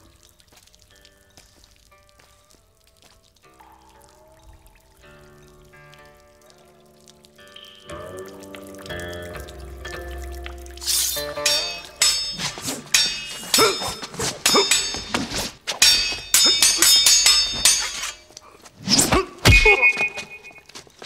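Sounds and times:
metal weapons clashing: 10.8 - 20.3.

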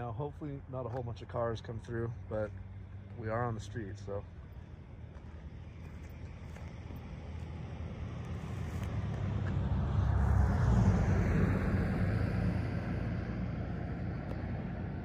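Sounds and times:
car driving past: 5.6 - 15.0.

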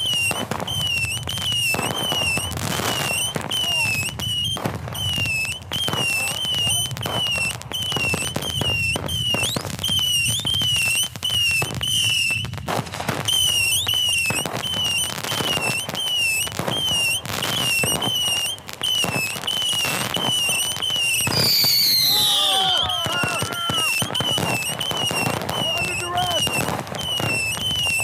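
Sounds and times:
fireworks bangs and crackling: 0.0 - 28.0.

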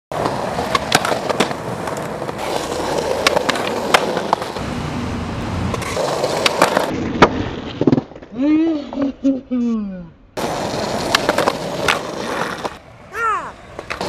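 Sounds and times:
skateboard grinding on concrete ledge: 0.1 - 4.7, 5.4 - 9.1, 10.4 - 12.8
skateboard wheels rolling on concrete: 0.1 - 9.4, 10.4 - 14.0
skateboard sharp clacks: 0.2 - 4.6, 5.7 - 8.2, 10.4 - 12.8, 13.7 - 14.0.

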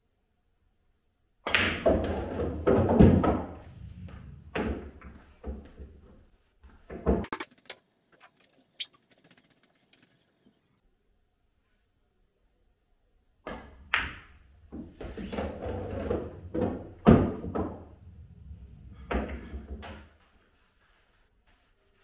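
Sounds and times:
pool balls clicking and knocking: 1.4 - 10.5, 13.4 - 20.3
low rolling rumble: 3.6 - 5.0, 16.2 - 19.7.

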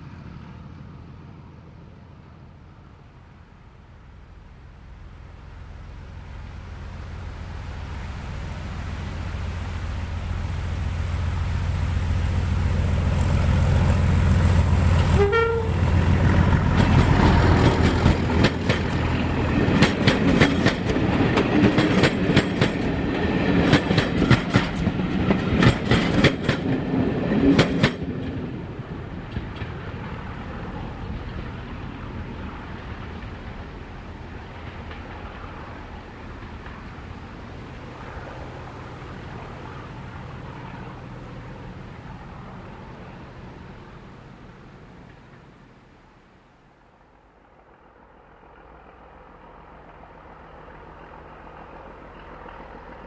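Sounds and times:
diesel locomotive engine drone: 0.0 - 53.0
wheels clattering over rail joints: 14.4 - 28.6
locomotive horn: 15.0 - 16.1.

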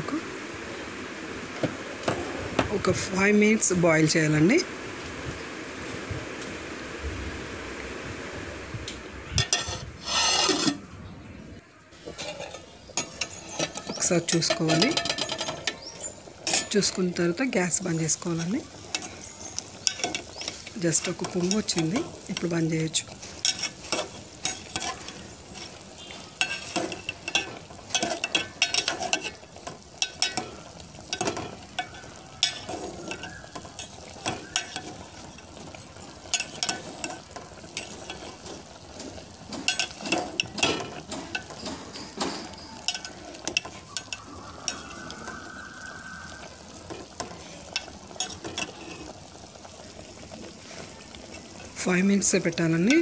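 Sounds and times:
hot liquid hissing: 0.0 - 53.0
metal spoon scraping a pot: 9.4 - 10.9, 12.0 - 17.0, 18.3 - 45.1, 46.8 - 49.2.

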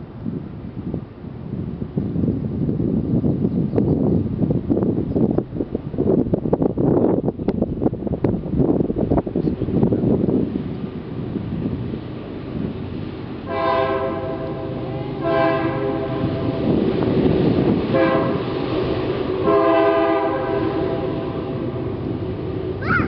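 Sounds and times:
locomotive air horn blasts: 13.5 - 16.7, 17.9 - 18.6, 19.3 - 21.9.

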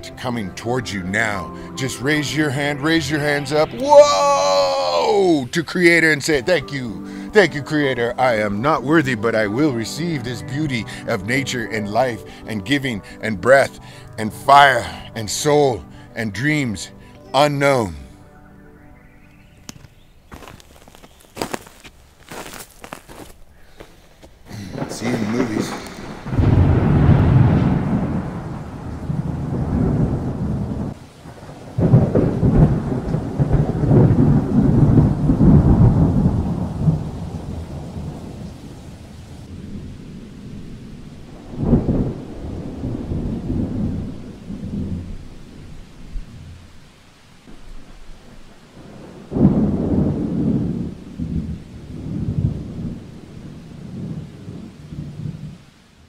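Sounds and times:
rain hissing: 0.0 - 56.0
thunder crack and rumble: 24.5 - 55.6.

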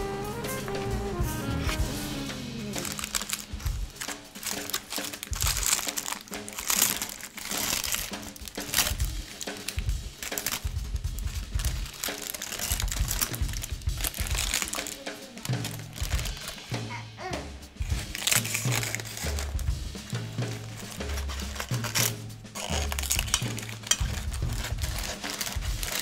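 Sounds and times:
background music: 0.0 - 8.9, 14.0 - 26.0
parchment paper crinkling: 2.8 - 17.0, 17.8 - 26.0.

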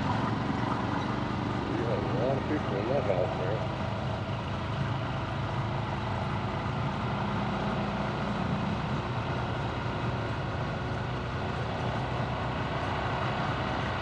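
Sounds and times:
motorcycle engine cruising: 0.0 - 14.0
road and wind noise: 0.0 - 14.0.

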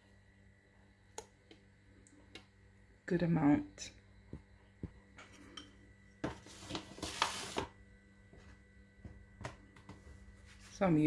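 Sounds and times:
rustling scrape: 6.4 - 7.7.

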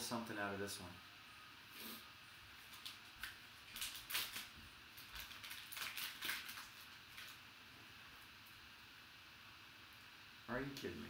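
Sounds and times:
plastic wrapper crinkling: 2.6 - 7.4.

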